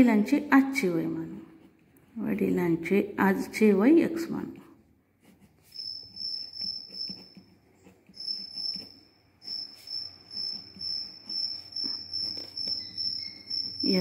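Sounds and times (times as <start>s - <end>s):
cricket chirping: 5.7s - 7.1s, 8.2s - 14.0s.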